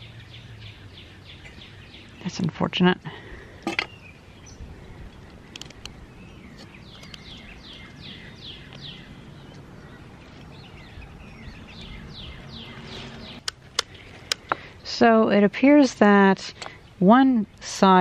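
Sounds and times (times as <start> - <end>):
bird chirping: 0.0 - 15.1
outdoor background noise: 0.0 - 18.0.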